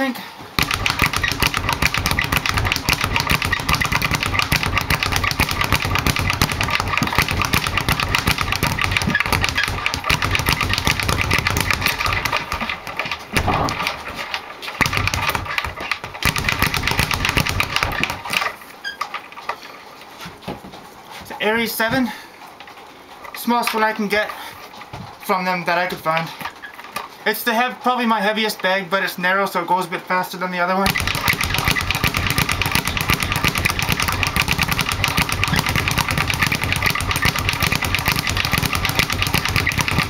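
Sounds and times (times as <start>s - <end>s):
speed bag punched rapidly: 0.6s - 18.6s, 30.8s - 40.0s.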